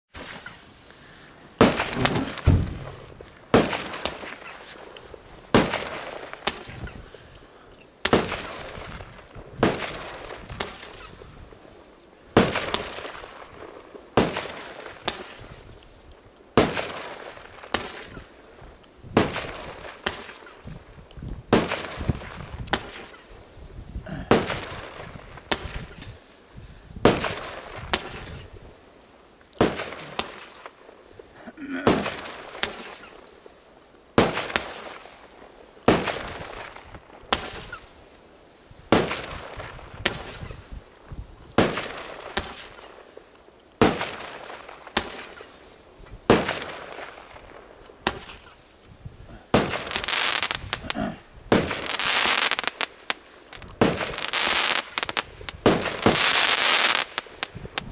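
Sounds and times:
firework bangs: 1.6 - 7.0, 8.0 - 11.3, 12.3 - 15.6, 19.1 - 23.4, 24.1 - 26.1, 27.0 - 28.6, 29.6 - 30.8, 31.8 - 33.2, 34.2 - 37.9, 38.9 - 40.6, 41.5 - 43.0, 43.8 - 45.6, 46.2 - 48.6, 49.3 - 57.9.

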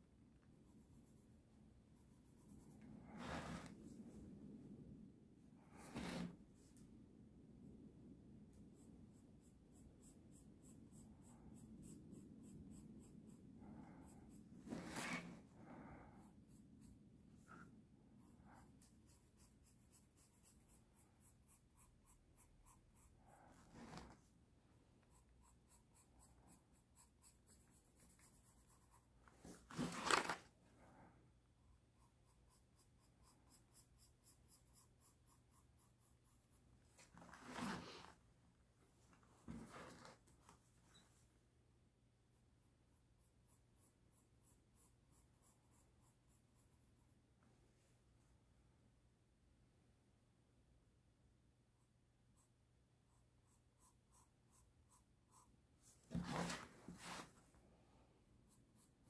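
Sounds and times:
sketching strokes on a surface: 2.6 - 4.0, 5.6 - 6.4, 9.1 - 30.4, 31.6 - 38.3, 43.0 - 46.7, 52.2 - 57.5
rubbing sounds: 3.0 - 4.1, 5.7 - 6.4, 9.7 - 15.8, 16.4 - 30.6, 31.9 - 38.3, 39.0 - 41.2, 53.8 - 57.6.

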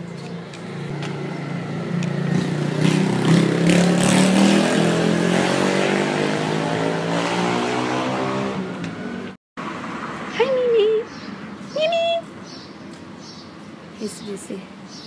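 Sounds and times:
motorbike engine passing by: 1.3 - 8.8.

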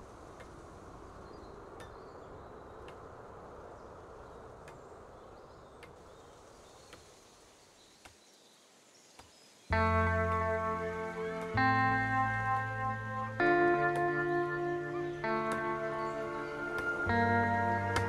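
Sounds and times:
outdoor background noise: 0.0 - 18.0
soft clicks: 9.2 - 18.0.

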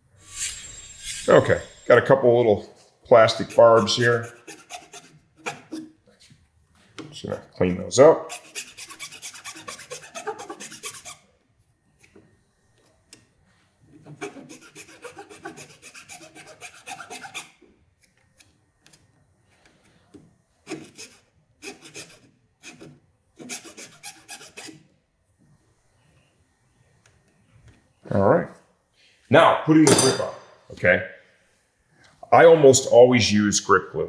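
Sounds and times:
hand file rasping plastic: 3.2 - 5.9, 8.2 - 11.2, 14.0 - 17.6, 20.7 - 24.8.

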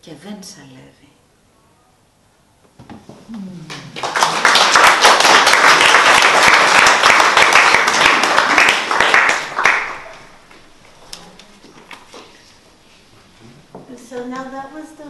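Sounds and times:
small audience clapping: 3.6 - 12.4.

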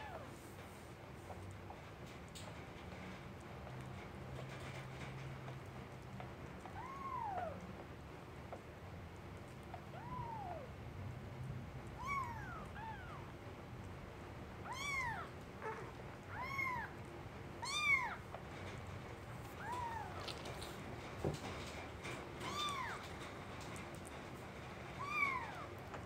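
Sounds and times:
kittens mewing: 12.0 - 13.3.

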